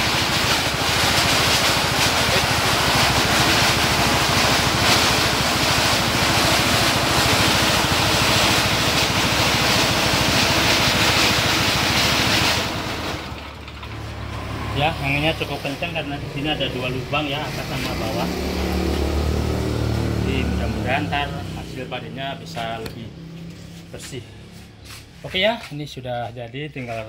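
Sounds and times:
rush of air from thresher: 0.0s - 13.4s
small petrol engine drone: 0.0s - 24.7s.

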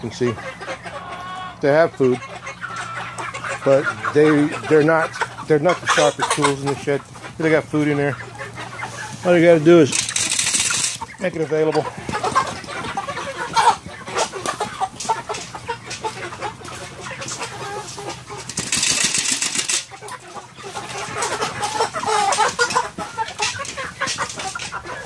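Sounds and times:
chickens clucking: 0.0s - 25.0s
feed rattling in metal feeder: 9.6s - 11.0s, 18.3s - 20.0s.

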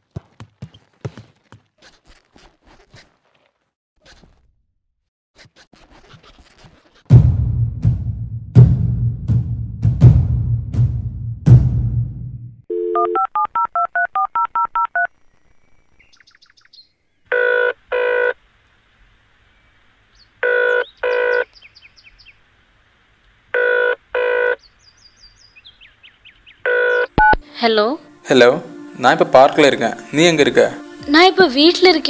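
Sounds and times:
drum-heavy music: 7.1s - 12.5s
phone ringback tone: 12.7s - 15.1s, 17.3s - 18.4s, 20.4s - 21.5s, 23.6s - 24.6s, 26.7s - 27.4s
touch-tone keypad beeps: 12.7s - 15.1s
birds chirping faintly: 15.0s - 17.3s, 18.4s - 23.6s, 24.3s - 27.2s.

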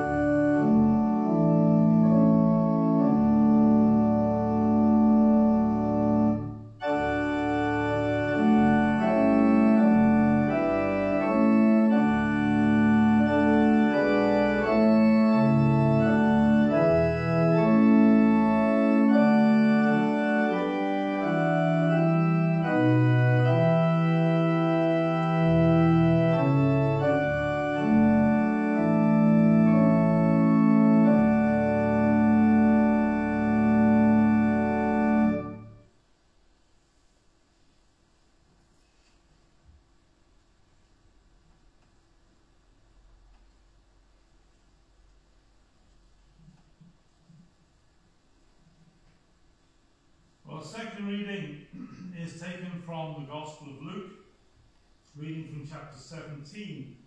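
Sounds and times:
pipe organ playing a hymn: 0.0s - 35.9s, 50.5s - 54.1s, 55.2s - 56.9s.

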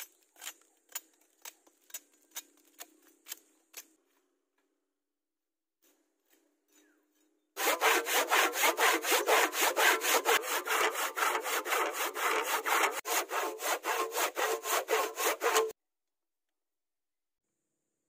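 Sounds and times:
handsaw cutting wood: 7.6s - 15.8s.

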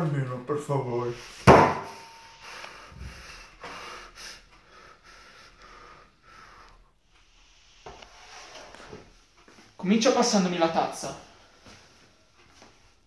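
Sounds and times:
person breathing noisily: 2.3s - 7.0s.

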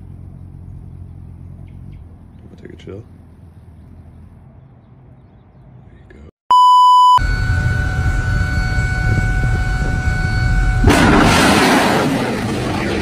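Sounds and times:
test beep: 6.5s - 10.9s
steady tone: 6.5s - 11.2s
missile launch roar: 10.8s - 13.0s.

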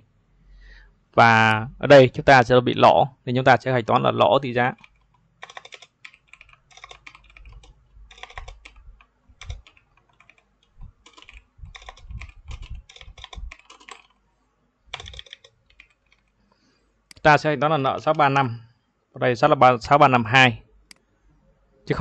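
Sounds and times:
typing on computer keyboard: 4.8s - 14.2s, 14.9s - 16.4s.

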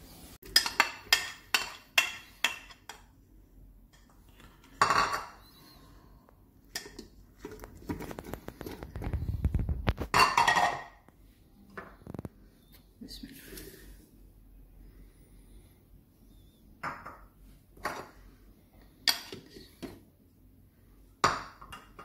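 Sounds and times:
dishes clinking: 0.4s - 3.0s, 4.7s - 5.4s, 10.1s - 11.0s, 19.0s - 19.9s.

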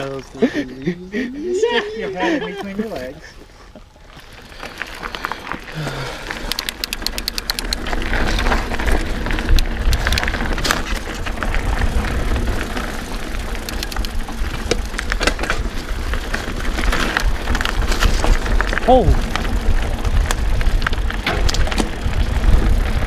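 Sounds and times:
bike rattling and clicking: 0.0s - 23.0s
tyres rolling over dirt and leaves: 0.0s - 23.0s
wind buffeting microphone: 6.8s - 23.0s.

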